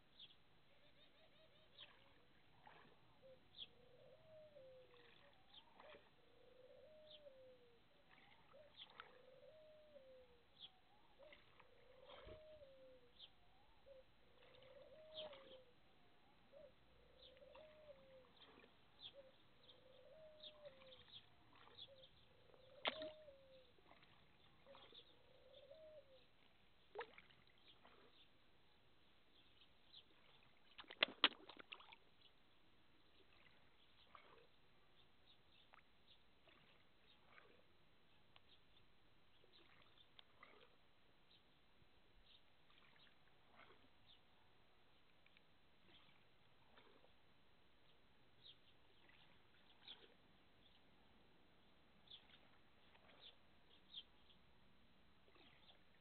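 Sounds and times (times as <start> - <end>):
fish mouthing at water surface: 1.8 - 3.2, 4.8 - 6.2, 8.0 - 9.3, 11.1 - 12.4, 14.3 - 15.6, 17.2 - 28.3, 30.1 - 32.0, 33.2 - 34.6, 35.6 - 37.7, 39.4 - 40.8, 42.7 - 44.0, 45.2 - 47.2.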